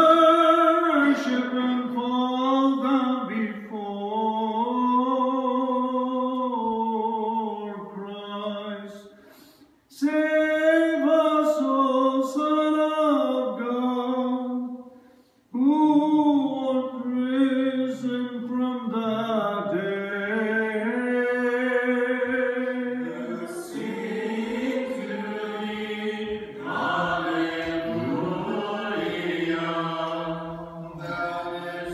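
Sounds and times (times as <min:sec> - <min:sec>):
male voices chanting: 0:19.8 - 0:31.9.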